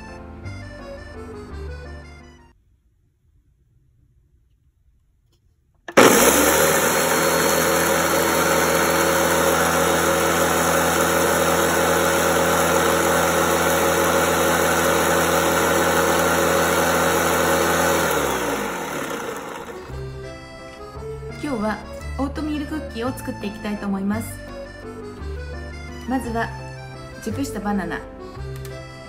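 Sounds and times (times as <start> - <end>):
blender motor grinding oats: 5.9 - 20.2.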